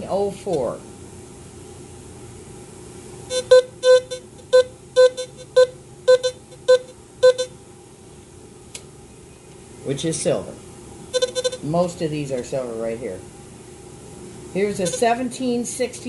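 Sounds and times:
metal detector beeping: 0:03.3 - 0:07.5, 0:11.2 - 0:11.7, 0:14.8 - 0:15.1.

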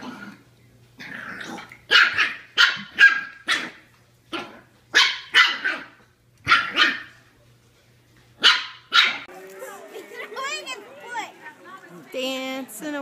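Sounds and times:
puppy growling: 0:00.0 - 0:02.3, 0:03.3 - 0:04.8
puppy barking sharply: 0:01.9 - 0:03.8, 0:04.9 - 0:07.2, 0:08.4 - 0:09.3.

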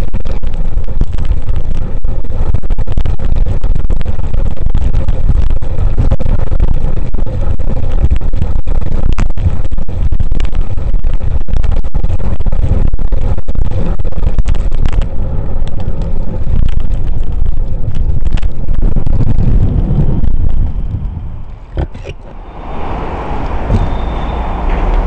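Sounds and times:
wind rumble on microphone: 0:00.0 - 0:25.0
road noise: 0:19.0 - 0:25.0
car traffic: 0:20.4 - 0:25.0.

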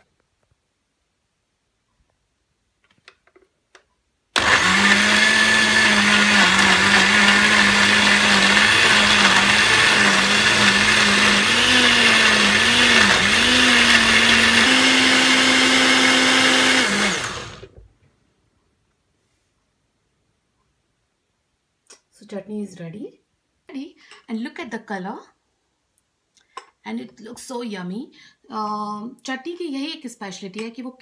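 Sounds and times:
blender motor grinding: 0:04.4 - 0:17.8.

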